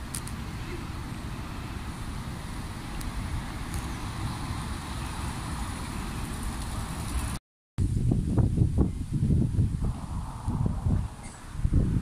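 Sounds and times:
continuous rushing hiss: 0:00.0 - 0:12.0
wind buffeting microphone: 0:00.0 - 0:12.0.

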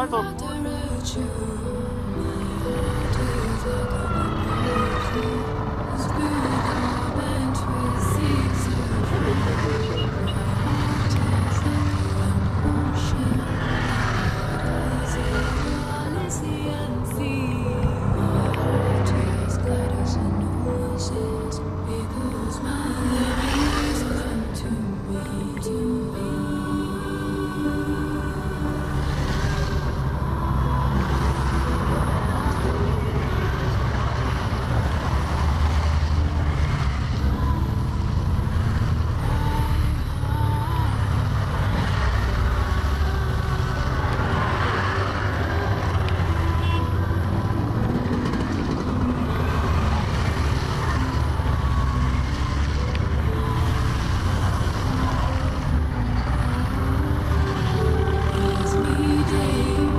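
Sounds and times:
motorcycles passing on wet road: 0:02.9 - 0:16.9, 0:27.4 - 0:59.9.

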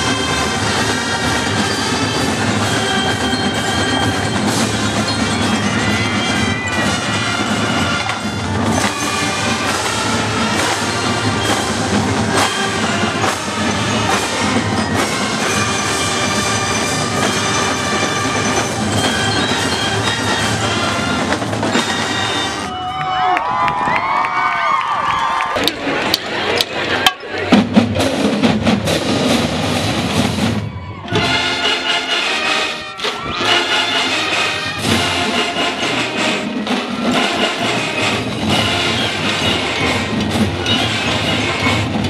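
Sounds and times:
bell lyres ringing: 0:00.0 - 0:22.7, 0:32.9 - 0:42.0
marching band playing: 0:00.0 - 0:22.9, 0:25.6 - 0:42.0.

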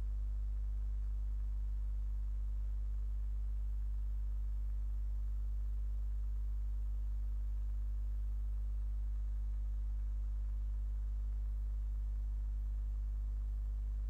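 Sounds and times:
mains hum: 0:00.0 - 0:14.0.

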